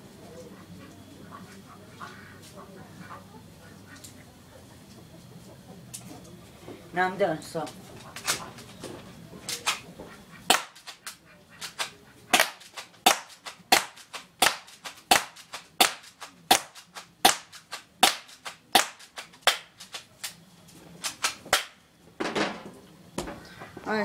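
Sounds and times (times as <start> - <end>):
pellet striking cardboard box: 10.5 - 10.8, 12.4 - 19.7
airsoft gun shots: 10.5 - 11.0, 11.6 - 19.7.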